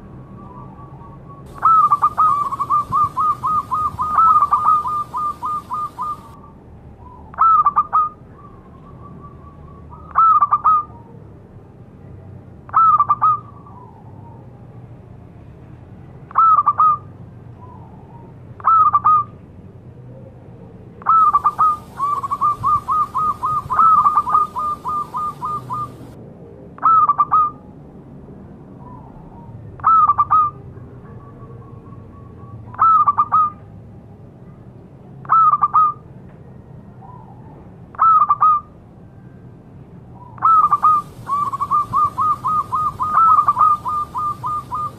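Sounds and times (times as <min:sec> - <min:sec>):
dove cooing: 0:00.5 - 0:06.4, 0:12.7 - 0:14.0, 0:21.0 - 0:26.2, 0:40.4 - 0:44.9.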